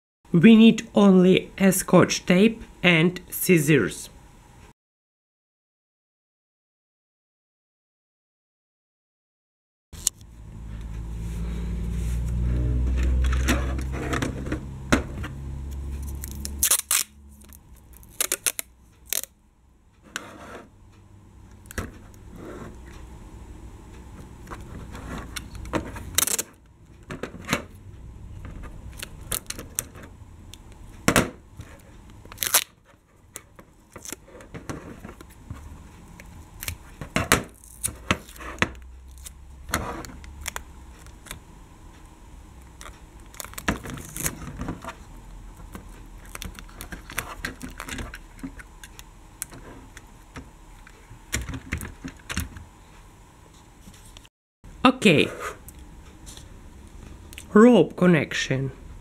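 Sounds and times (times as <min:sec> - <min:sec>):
low rumbling noise: 0:10.3 - 0:19.9
sticky tape crinkling: 0:15.7 - 0:19.4, 0:24.5 - 0:26.6, 0:28.9 - 0:30.1, 0:31.7 - 0:34.3, 0:36.0 - 0:39.4, 0:42.7 - 0:45.0, 0:45.6 - 0:50.0.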